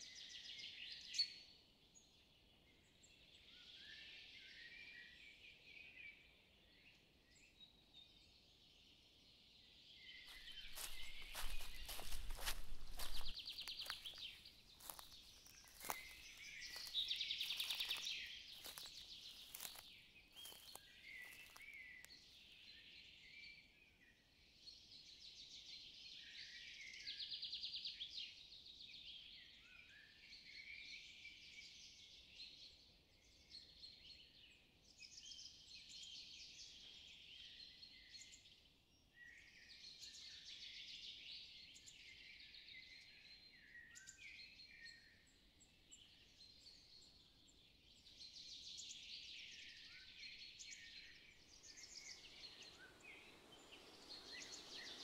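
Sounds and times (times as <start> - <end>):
small birds chirping: 7.4 - 23.6, 33.2 - 55.0
footsteps on dry leaves: 10.3 - 21.8.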